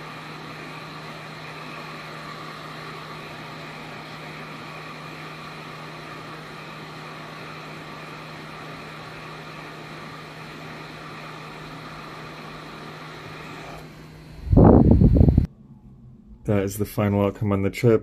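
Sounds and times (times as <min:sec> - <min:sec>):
hot air rework station blowing: 0:00.0 - 0:15.5.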